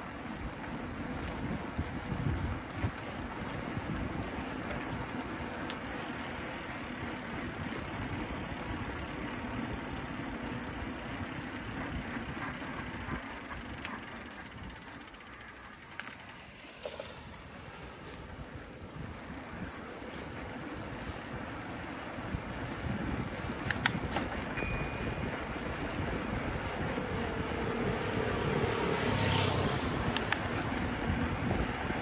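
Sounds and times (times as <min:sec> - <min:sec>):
bicycle rattles and clicks: 0:00.0 - 0:32.0
bicycle tyres rumbling on road: 0:00.0 - 0:32.0.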